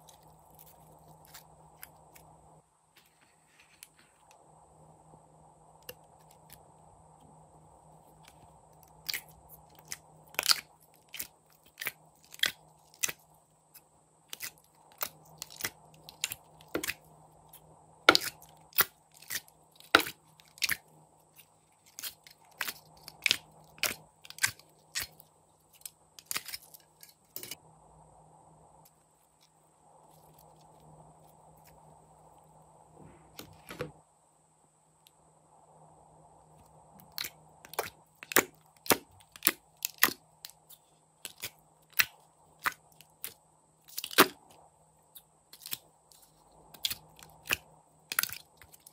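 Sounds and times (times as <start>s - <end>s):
sticky slime pops and crackles: 37.2s - 40.2s.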